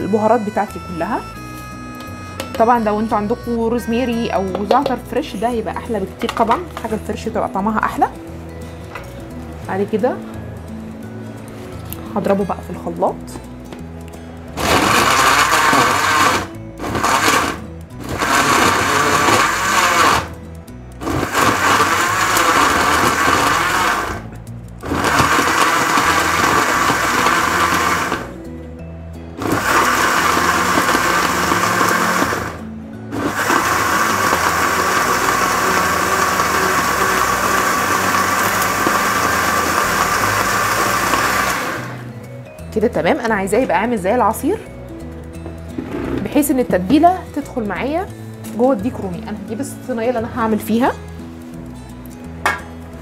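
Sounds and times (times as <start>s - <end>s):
electric blender running: 14.6s - 20.4s, 21.0s - 28.4s, 29.4s - 42.0s.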